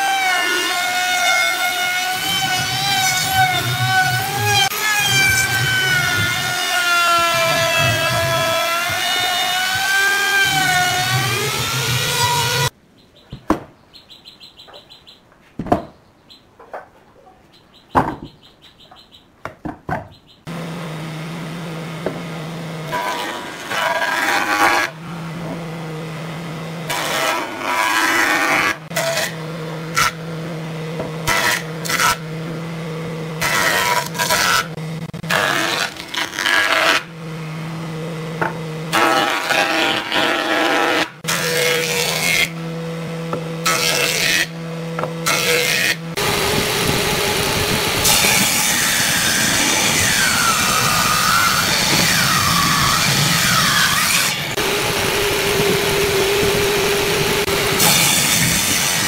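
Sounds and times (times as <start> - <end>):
jointer cutterhead rasping wood: 0.0 - 12.7, 20.5 - 59.0
boards knocking and clattering: 17.9 - 18.4, 19.4 - 20.2
jointer motor hum: 20.5 - 59.0.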